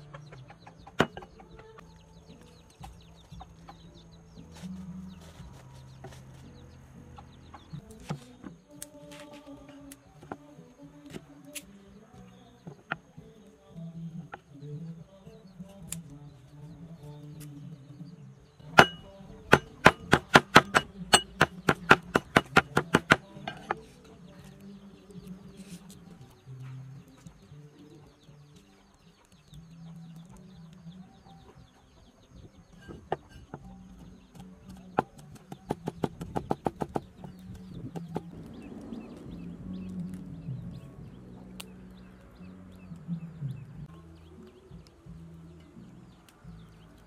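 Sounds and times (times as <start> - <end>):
cleaver chopping on wooden block: 18.8 - 23.8, 34.3 - 38.3.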